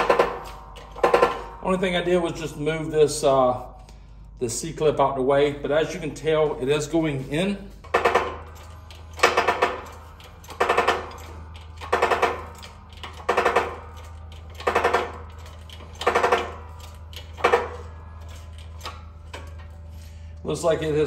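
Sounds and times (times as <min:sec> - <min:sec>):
steady low hum: 0:00.0 - 0:21.0
hydraulic jack pumping creaks: 0:07.7 - 0:20.2.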